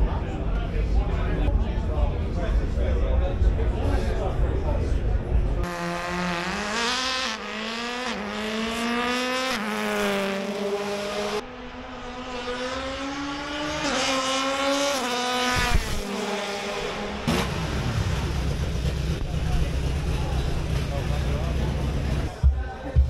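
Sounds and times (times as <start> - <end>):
race car engine accelerating: 5.6 - 22.4.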